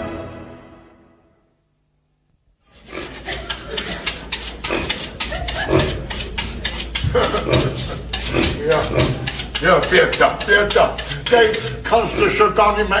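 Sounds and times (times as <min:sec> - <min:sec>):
rapid rhythmic scraping strokes: 0:02.6 - 0:13.0.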